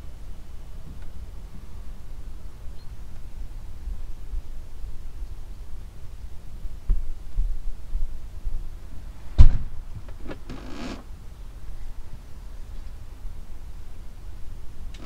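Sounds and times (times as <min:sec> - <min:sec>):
rubbing on window pane: 0:10.2 - 0:11.0.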